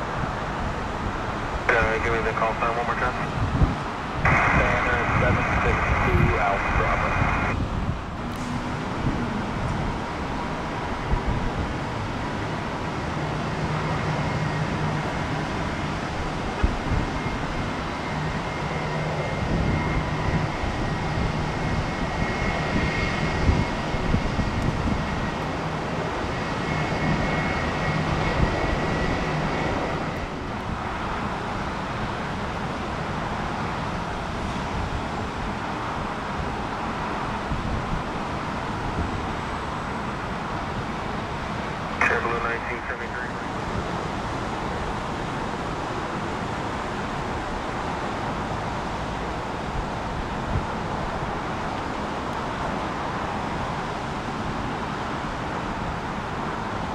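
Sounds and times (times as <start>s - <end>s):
jet engines rushing: 0.0s - 56.9s
faint high whine: 4.2s - 7.6s.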